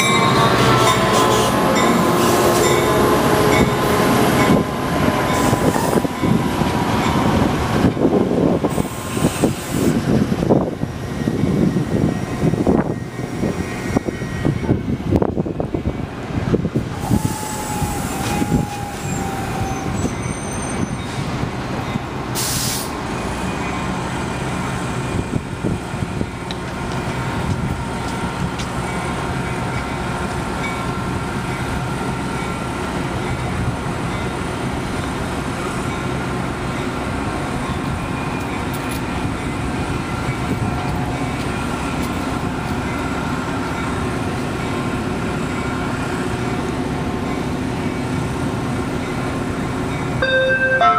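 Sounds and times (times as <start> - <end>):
train brakes squealing: 0.0 - 3.7, 17.0 - 25.4
diesel train engine drone: 0.0 - 50.9
air hiss: 22.4 - 23.0.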